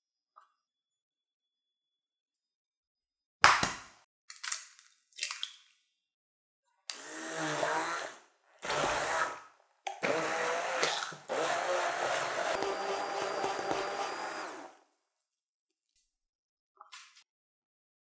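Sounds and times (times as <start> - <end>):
hand blender running: 6.9 - 9.4, 10.0 - 14.8.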